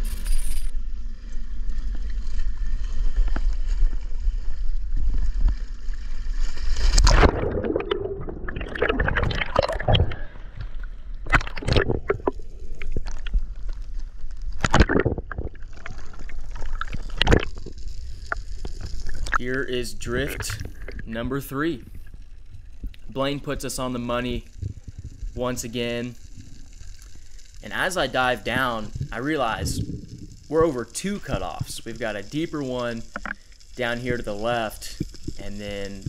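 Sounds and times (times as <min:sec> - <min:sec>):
low rumble: 0:00.0 - 0:33.1
underwater bubbling: 0:00.8 - 0:36.0
diver splashing into water: 0:06.8 - 0:10.3.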